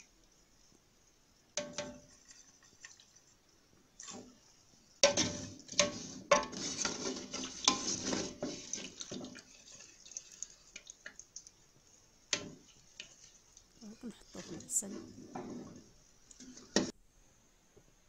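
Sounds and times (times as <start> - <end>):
scraping and clattering in oil: 1.6 - 3.4, 4.0 - 13.7, 14.4 - 17.0.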